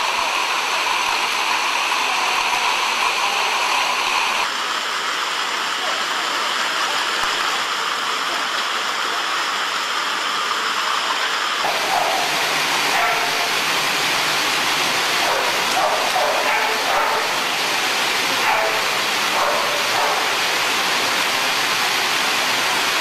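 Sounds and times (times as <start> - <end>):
wooden dog treadmills running: 11.6 - 13.7, 15.1 - 21.6.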